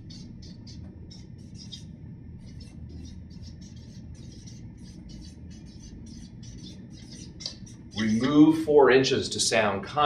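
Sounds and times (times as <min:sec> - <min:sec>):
marker scratching on paper: 0:00.0 - 0:08.3.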